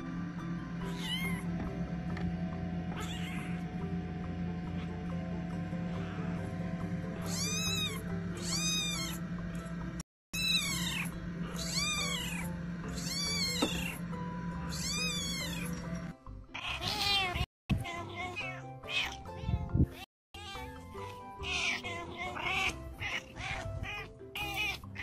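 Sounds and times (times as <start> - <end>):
kitten meowing: 2.9 - 3.6, 7.2 - 9.2, 10.4 - 14.0, 14.6 - 15.7.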